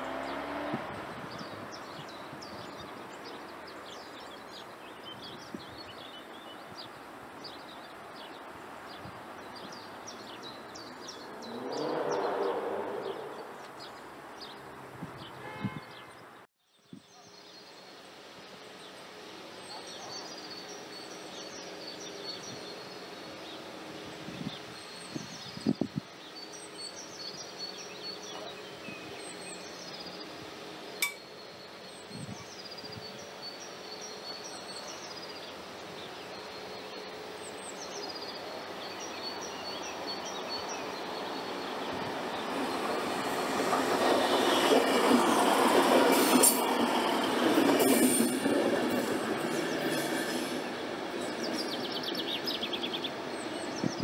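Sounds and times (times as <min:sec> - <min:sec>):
small birds chirping: 0:00.0 - 0:54.0.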